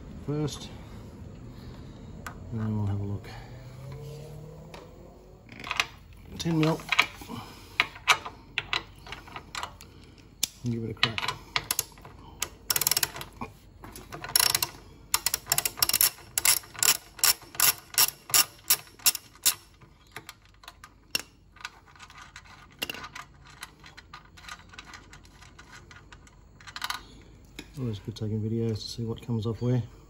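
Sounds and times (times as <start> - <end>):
socket ratchet clicking: 14.3 - 19.7.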